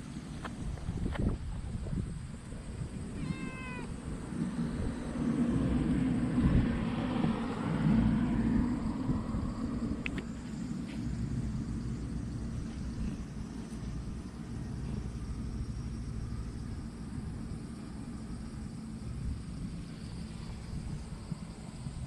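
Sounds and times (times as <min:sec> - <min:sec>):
cat meowing: 0:03.1 - 0:04.0.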